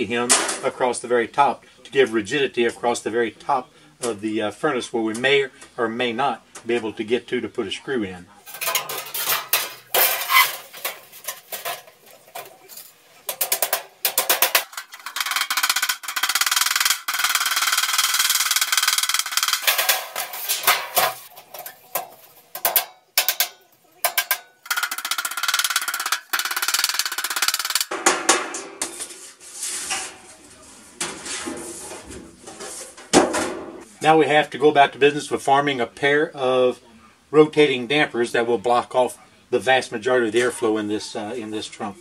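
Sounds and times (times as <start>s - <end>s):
hammer tapping on sheet metal: 13.3s - 26.9s.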